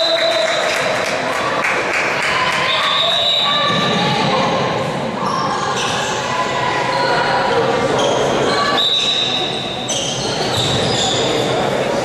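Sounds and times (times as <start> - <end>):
players' voices echoing: 0.0 - 12.0
shoe squeaks: 5.2 - 6.4, 7.9 - 11.6.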